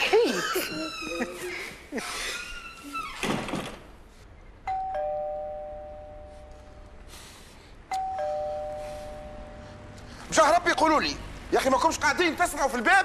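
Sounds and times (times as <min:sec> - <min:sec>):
two-tone doorbell: 0:04.7 - 0:06.9, 0:07.9 - 0:10.0.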